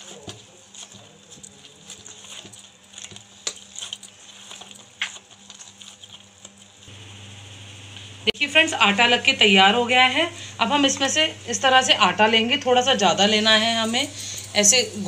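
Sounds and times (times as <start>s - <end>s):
dough squishing and patting: 0.0s - 7.0s.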